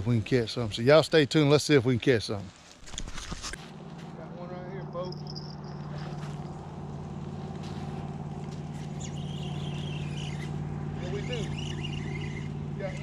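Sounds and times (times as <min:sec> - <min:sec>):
engine humming steadily: 0:03.4 - 0:13.0.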